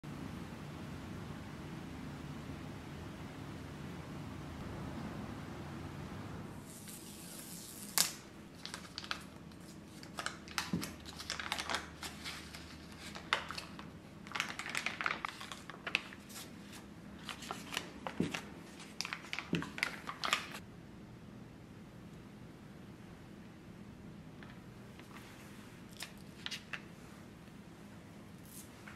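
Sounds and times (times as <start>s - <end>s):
foil paper wrapper crinkling: 6.7s - 20.6s.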